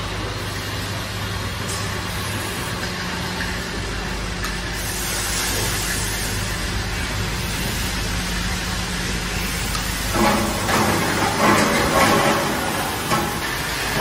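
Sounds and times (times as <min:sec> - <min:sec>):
machine hum: 0:00.0 - 0:14.0
broad hiss: 0:04.6 - 0:10.1.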